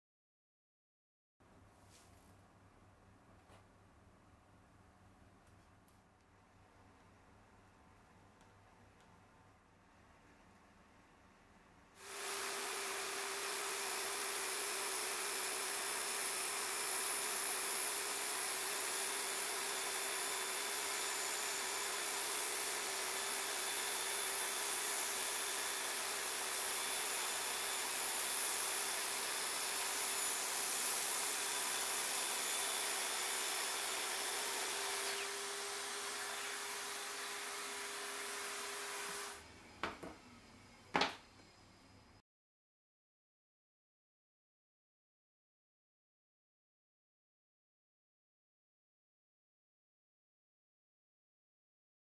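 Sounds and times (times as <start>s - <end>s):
dust extraction hose: 12.0s - 39.5s
circular saw cutting plywood: 12.0s - 39.8s.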